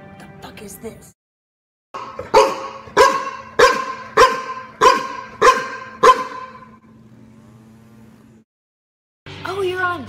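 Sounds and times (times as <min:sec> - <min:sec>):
dog barking: 0:02.0 - 0:06.8.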